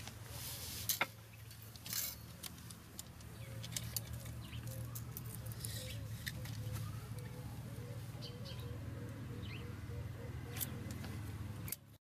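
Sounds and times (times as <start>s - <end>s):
tool handling clicks and rustles: 0.0s - 7.2s.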